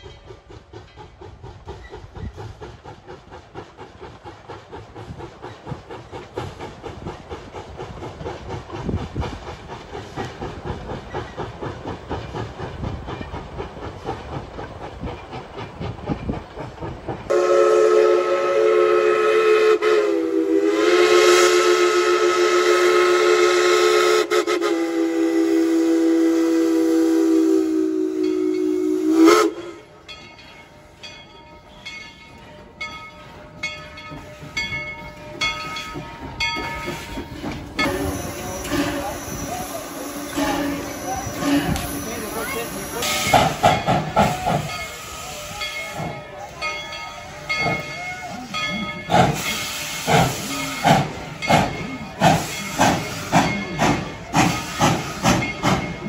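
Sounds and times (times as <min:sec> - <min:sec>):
steam locomotive chuffing: 0:00.0 - 0:56.0
steam whistle blast: 0:17.3 - 0:29.8, 0:37.8 - 0:42.3, 0:49.4 - 0:51.0.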